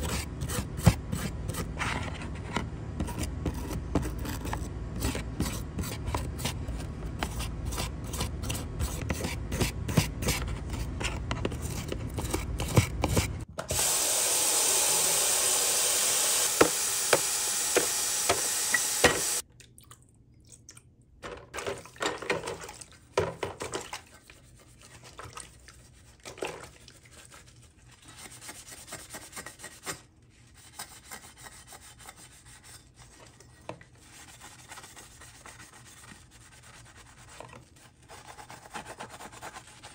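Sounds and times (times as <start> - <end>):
brush scrubbing paint: 0.0 - 13.5, 24.0 - 39.9
sponge splashing and rubbing: 22.6 - 39.9.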